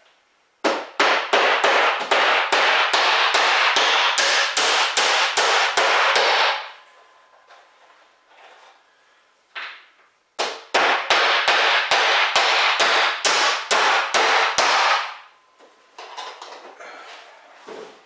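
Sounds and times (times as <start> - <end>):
hammer striking nails: 0.6 - 6.7, 10.4 - 15.2.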